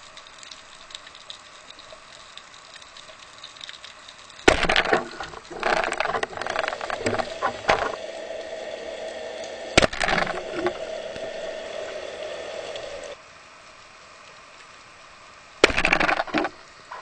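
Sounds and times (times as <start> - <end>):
sharp crack: 4.4 - 8.0, 9.8 - 11.4, 15.6 - 17.0
steady hum: 4.5 - 13.2.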